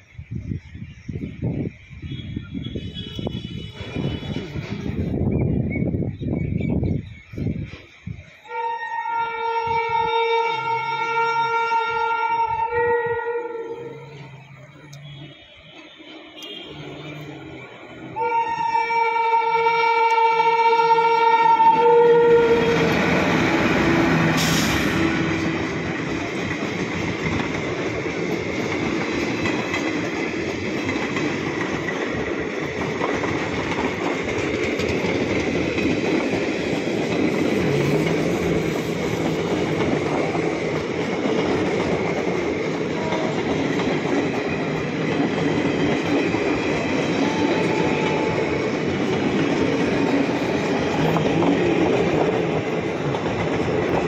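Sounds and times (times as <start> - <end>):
locomotive horn: 2.1 - 4.8, 8.4 - 17.5, 18.1 - 26.1, 42.9 - 43.7, 47.2 - 48.6
train wheels clattering on rails: 20.0 - 54.0.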